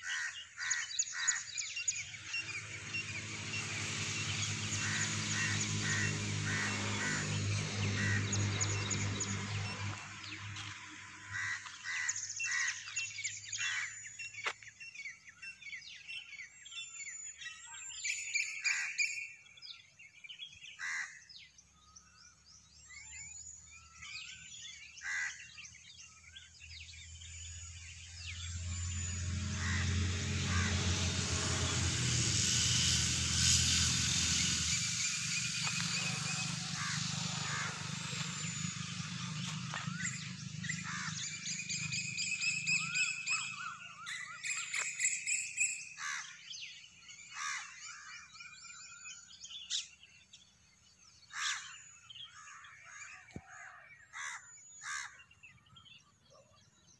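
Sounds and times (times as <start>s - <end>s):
birds chirping and calling: 0.0s - 56.9s
steady rushing noise with low hum: 1.5s - 12.0s, 27.4s - 43.9s.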